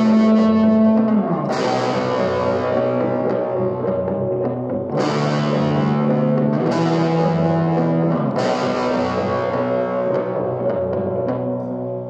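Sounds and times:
distorted electric guitar chords: 0.0 - 12.0.

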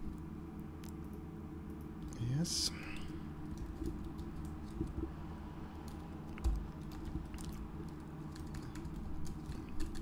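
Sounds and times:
computer keyboard typing: 3.5 - 5.1, 5.8 - 10.0.

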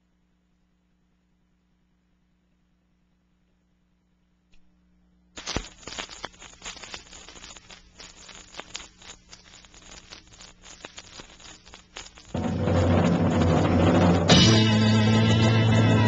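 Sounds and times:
vinyl surface crackle and pops: 5.3 - 13.7.

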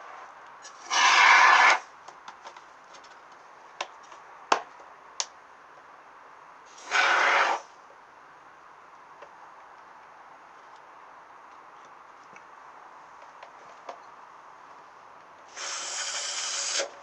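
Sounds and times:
aerosol foam spray hissing: 15.5 - 16.9.

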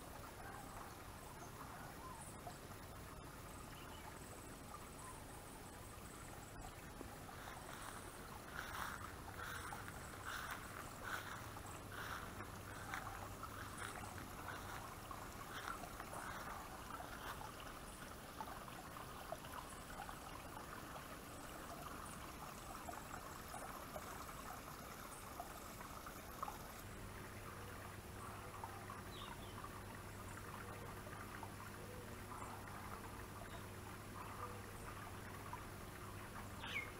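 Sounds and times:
waterfall splashing into pond: 7.0 - 27.7.

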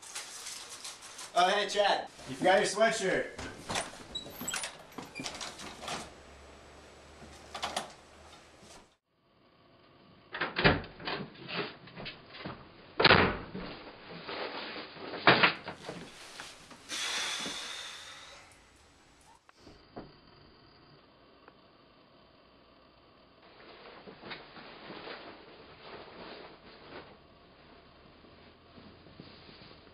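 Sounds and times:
rustling as someone sits on bed: 15.8 - 16.9.

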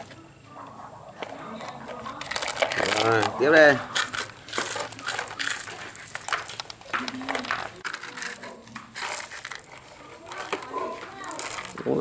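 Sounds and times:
toy excavator scraping gravel: 1.2 - 12.0.

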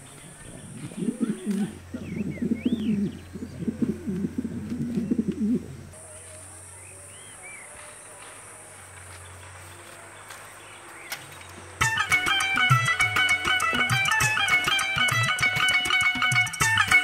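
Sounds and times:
pigeons cooing: 0.0 - 6.2
small birds chirping: 0.0 - 11.8.

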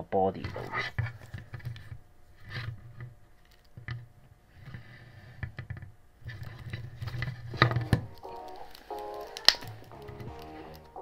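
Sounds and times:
plastic clicks and scrapes: 4.6 - 10.9.

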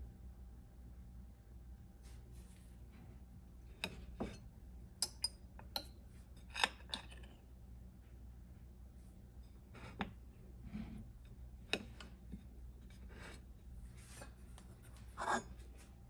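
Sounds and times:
metal spoon clinking on dish: 5.0 - 5.9.

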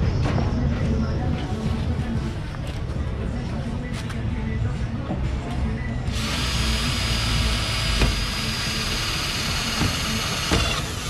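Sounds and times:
cordless drill drilling: 6.1 - 11.0.

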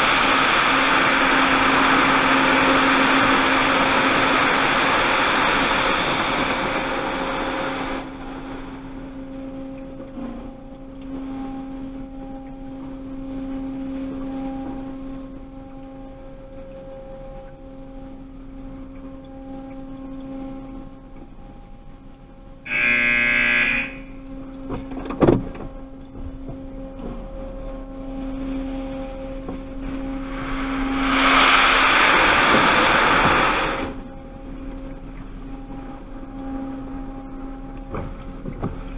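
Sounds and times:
loud buzz: 0.0 - 8.8, 22.7 - 24.3, 29.8 - 34.1
steady electrical hum: 0.0 - 38.9
water spray hitting windshield: 31.0 - 34.0.

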